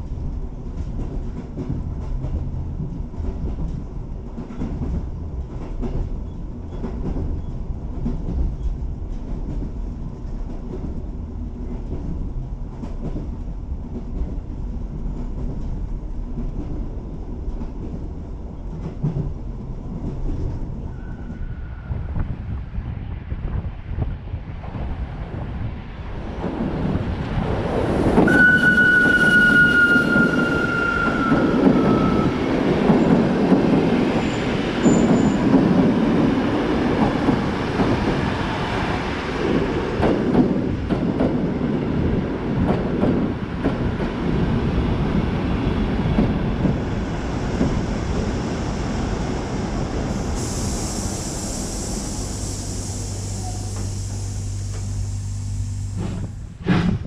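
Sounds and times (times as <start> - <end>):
train wheels rumbling: 0.0 - 57.0
high squealing tone: 28.3 - 32.4
steam hiss: 46.9 - 57.0.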